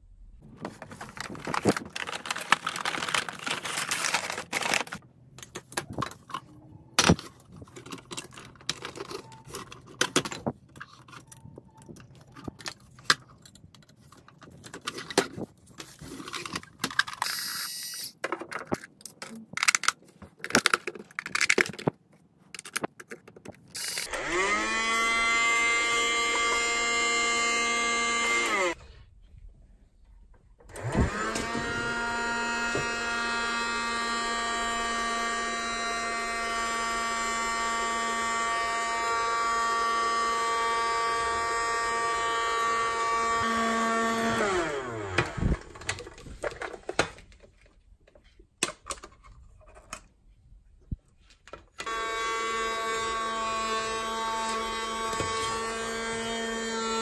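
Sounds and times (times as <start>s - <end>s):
packaging rustling: 0.4s - 5.0s
toy vacuum motor whine: 23.7s - 28.8s, 30.7s - 46.1s, 51.8s - 57.0s.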